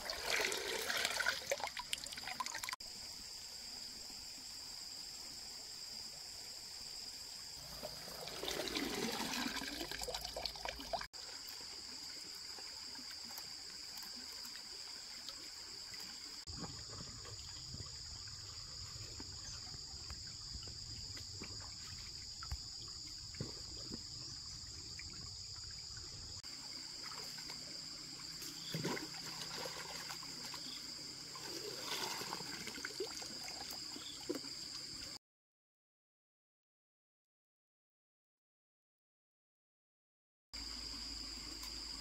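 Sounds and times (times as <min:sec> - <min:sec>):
water trickling: 0:00.0 - 0:02.8, 0:07.6 - 0:35.2.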